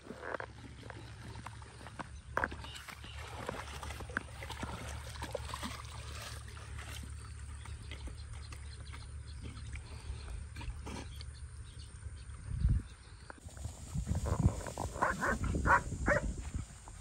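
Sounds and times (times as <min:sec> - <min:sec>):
water splashing: 0:00.0 - 0:08.6.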